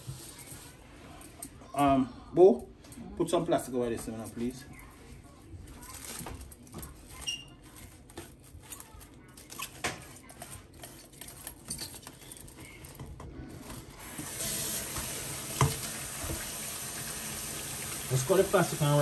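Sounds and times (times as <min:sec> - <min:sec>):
tap water running: 0:14.0 - 0:19.0.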